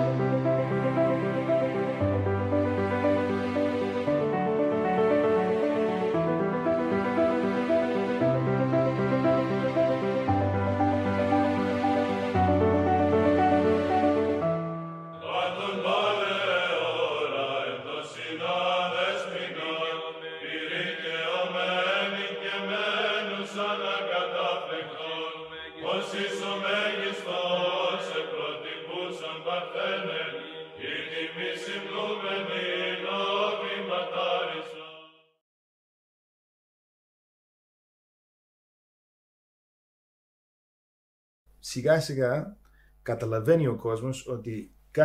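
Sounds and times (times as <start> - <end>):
soft music: 0.0 - 16.7
church chant singing: 0.0 - 35.4.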